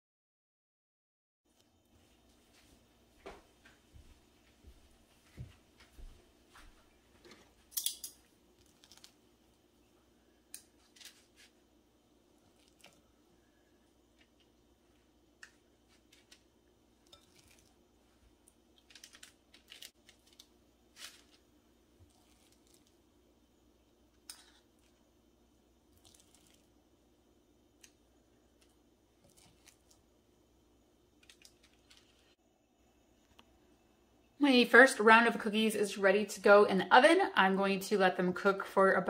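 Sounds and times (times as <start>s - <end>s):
faint steady hum: 1.5s - 39.0s
metal spoons scraping and clicking: 7.7s - 8.2s, 17.0s - 17.7s.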